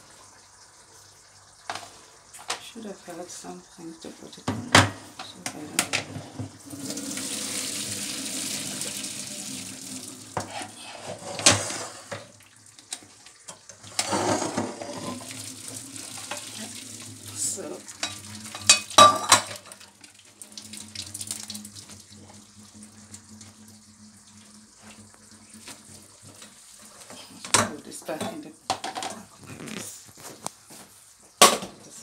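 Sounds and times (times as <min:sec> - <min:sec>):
water pouring into metal sink: 0:06.5 - 0:10.8, 0:11.4 - 0:28.1
pot clattering against sink: 0:13.5 - 0:15.4, 0:17.6 - 0:19.8, 0:27.4 - 0:29.2.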